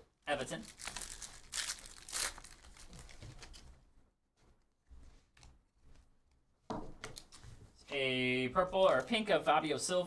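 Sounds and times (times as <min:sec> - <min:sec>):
wrapper crinkling: 0:00.4 - 0:03.7
cards rustling: 0:00.6 - 0:03.7
foil wrapper ripping: 0:00.7 - 0:03.1.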